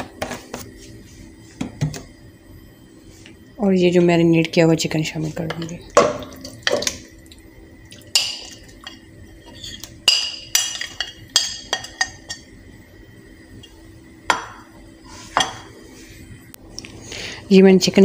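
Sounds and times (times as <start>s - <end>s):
spoon scraping on china plate: 9.4s - 10.0s.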